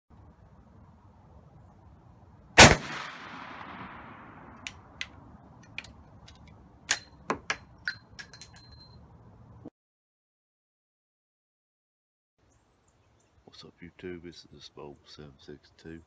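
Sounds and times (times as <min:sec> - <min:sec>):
gunshot echoing: 0:02.6 - 0:04.9.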